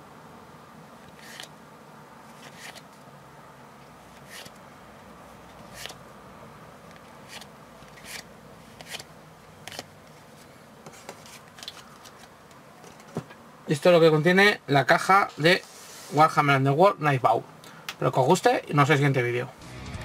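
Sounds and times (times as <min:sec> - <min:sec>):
faint room hum: 0:00.0 - 0:20.0
cards flicking and tapping: 0:02.3 - 0:02.9, 0:06.9 - 0:09.9.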